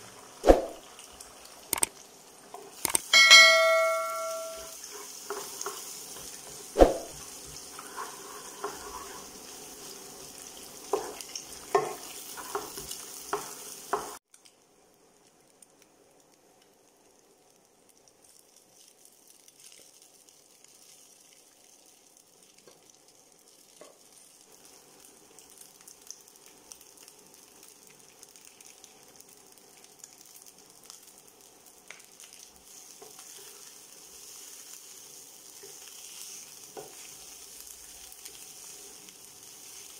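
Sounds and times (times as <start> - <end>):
egg sizzling in a frying pan: 0.0 - 39.9
wooden spatula scraping a pan: 4.8 - 14.2, 35.6 - 37.5.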